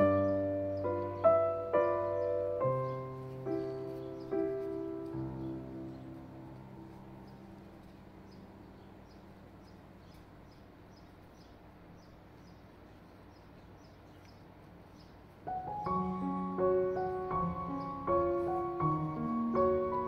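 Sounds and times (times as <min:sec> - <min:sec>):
piano chord: 0:00.0 - 0:09.9, 0:15.4 - 0:20.0
faint hiss: 0:00.0 - 0:20.0.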